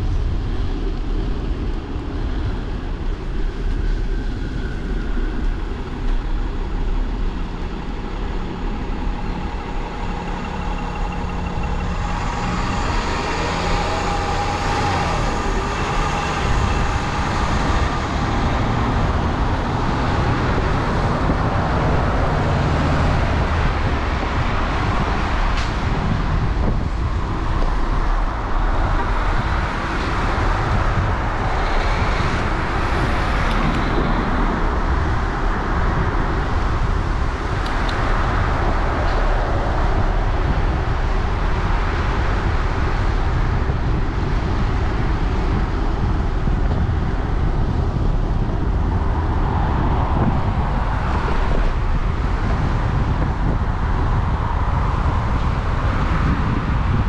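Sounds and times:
low traffic rumble: 0.0 - 57.0
falling engine tone: 4.8 - 43.7.

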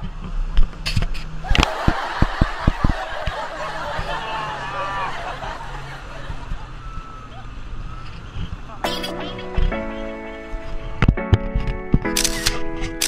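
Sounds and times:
low engine hum: 0.0 - 12.4
people laughing and calling out: 1.4 - 7.7
low thumps: 8.4 - 12.1.

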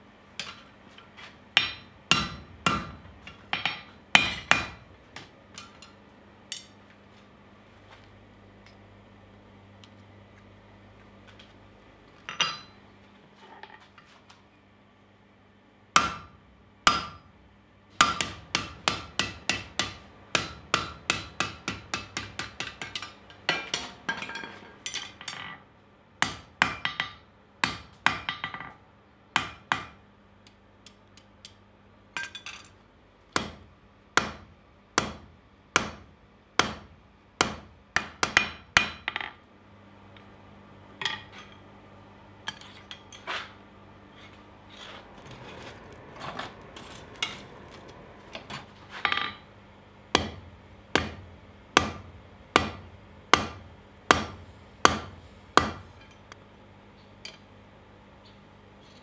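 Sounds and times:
hammer striking steel on anvil: 1.6 - 4.9, 12.3 - 12.8, 16.0 - 17.3, 18.0 - 25.4, 26.2 - 28.7, 29.4 - 30.0, 33.4 - 33.6, 34.2 - 39.3, 50.1 - 56.2.

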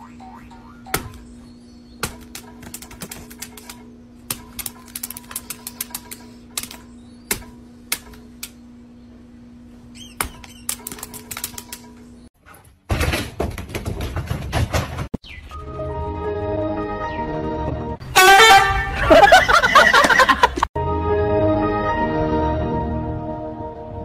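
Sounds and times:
steady low hum: 0.0 - 12.3.

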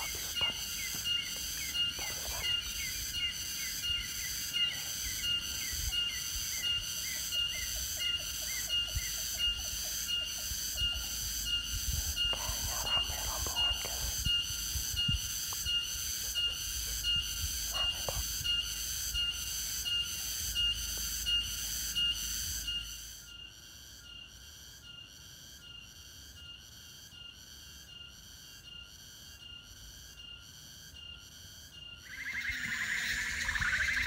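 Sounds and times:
low wind rumble: 10.9 - 18.9.

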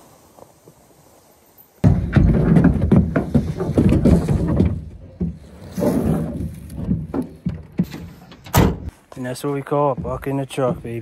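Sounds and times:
boot steps on truck bed: 1.8 - 8.9
thumps: 1.8 - 8.9
carcass scraping on plastic bed liner: 5.5 - 6.8.

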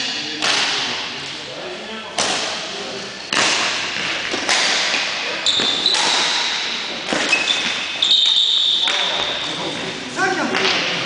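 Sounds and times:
racket striking shuttlecock: 0.4 - 0.8, 3.3 - 9.3
shoes squeaking on floor: 5.4 - 10.0.

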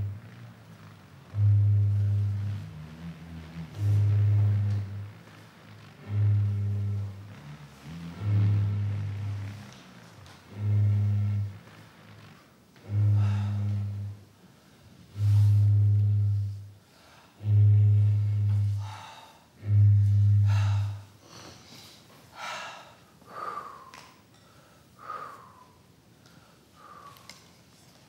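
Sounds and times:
deep blown instrument note: 0.0 - 14.3, 15.1 - 16.7, 17.4 - 21.1.

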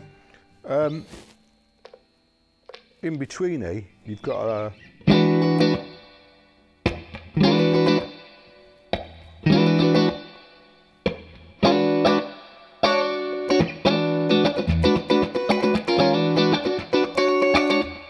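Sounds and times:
electric guitar chords: 4.3 - 18.0.

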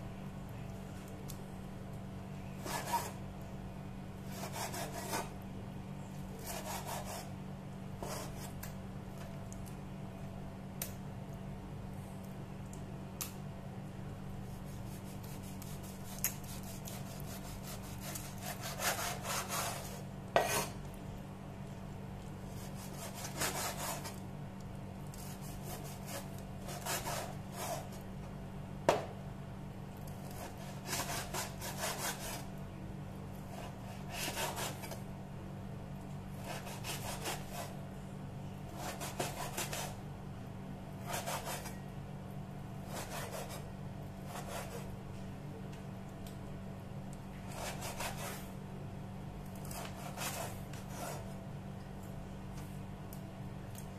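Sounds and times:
cleaver sawing raw meat: 4.3 - 5.3, 6.4 - 7.3, 15.2 - 20.7, 22.6 - 24.1, 25.2 - 27.9, 30.4 - 32.4, 36.4 - 37.8, 41.1 - 41.7, 42.9 - 43.6, 49.8 - 51.3.

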